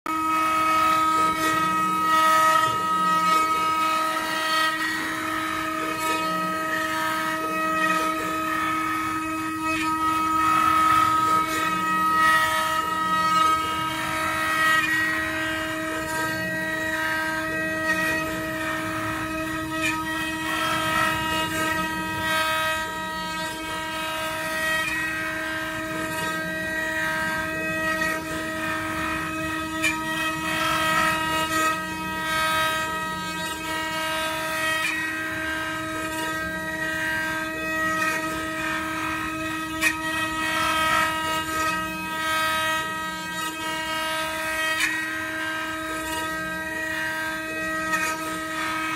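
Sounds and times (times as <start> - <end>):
router bits cutting wood: 0.1 - 48.9
router spindles whining: 0.1 - 48.9.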